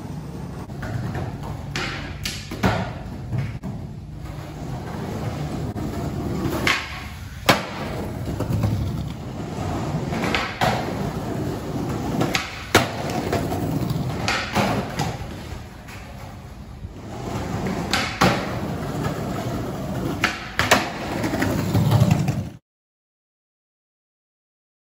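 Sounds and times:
skateboard wheels rolling on bricks: 0.0 - 22.6
skateboard slapping down: 0.6 - 3.7, 5.8 - 16.3, 17.2 - 22.6
skateboard tail popping: 0.7 - 3.7, 6.4 - 9.2, 10.1 - 11.1, 11.8 - 16.0, 17.7 - 22.4.

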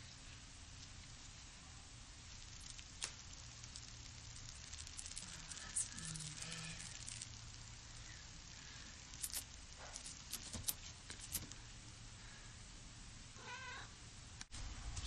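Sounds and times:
cat meowing: 13.4 - 13.9.

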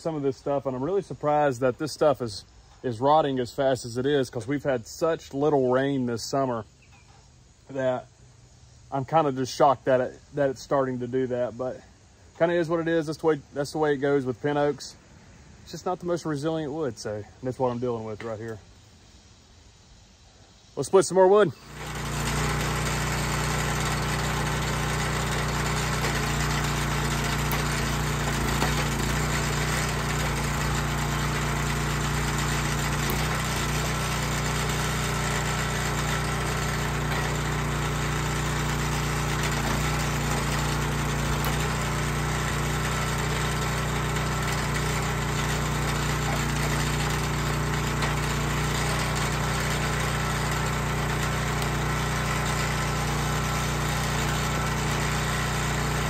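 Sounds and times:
small engine running steadily: 21.6 - 56.0.

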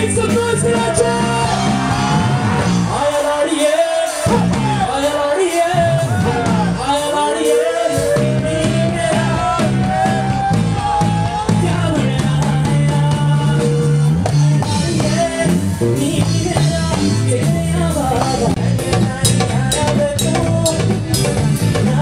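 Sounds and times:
person singing: 0.0 - 22.0
rock band playing: 0.0 - 22.0.

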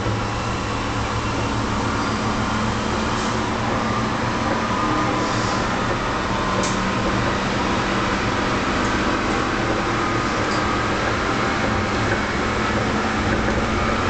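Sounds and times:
tram rolling on track: 0.0 - 14.0.

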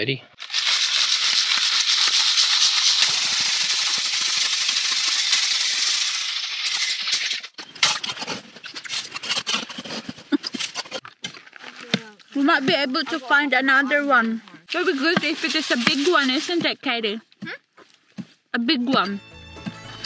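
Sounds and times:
gravel rattling in a wire sieve: 0.4 - 7.6
stones knocking and scraping: 0.4 - 20.0.

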